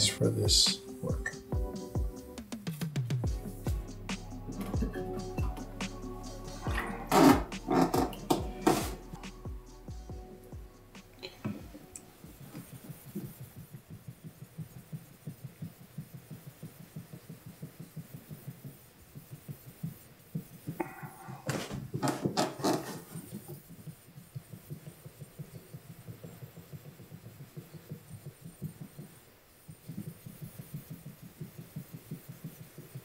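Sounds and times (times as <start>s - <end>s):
knife rubbing on whetstone: 6.3s - 9.9s, 21.6s - 23.7s.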